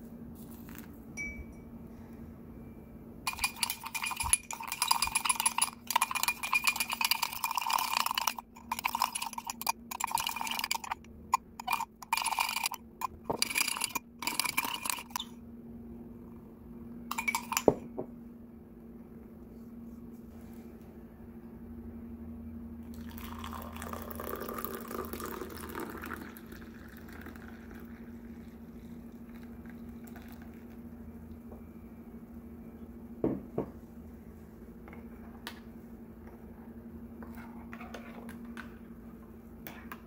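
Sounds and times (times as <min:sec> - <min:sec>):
spoon clinking on mug: 0:01.2 - 0:01.7, 0:03.3 - 0:15.3, 0:17.1 - 0:17.8, 0:27.0 - 0:27.8
spoon scraping in a mug: 0:03.3 - 0:15.3, 0:17.1 - 0:17.8.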